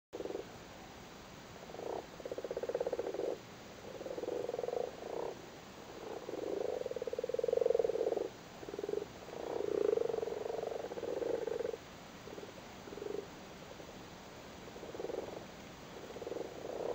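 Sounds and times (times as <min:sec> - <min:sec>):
frogs croaking in chorus: 0:00.2 - 0:00.5, 0:01.6 - 0:14.0, 0:14.6 - 0:16.9.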